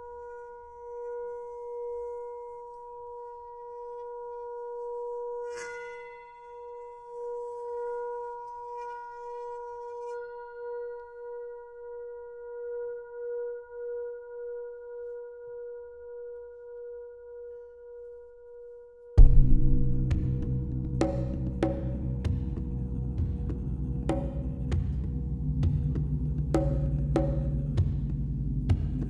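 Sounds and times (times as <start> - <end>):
loud low drum hit: 19.2 - 29.0
percussive music: 19.2 - 29.0.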